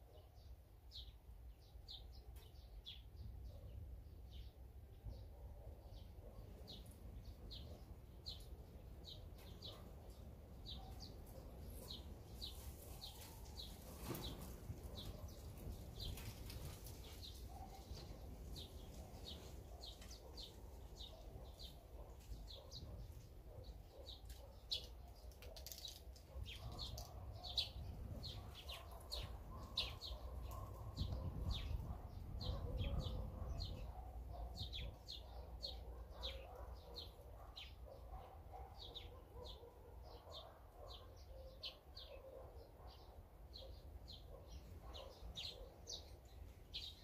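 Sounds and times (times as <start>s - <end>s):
small songbirds chirping: 0.0s - 47.0s.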